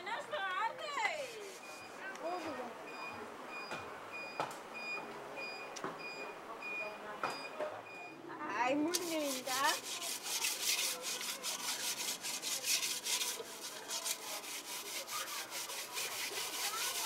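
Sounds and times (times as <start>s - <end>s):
metal pot being scrubbed: 8.9s - 17.0s.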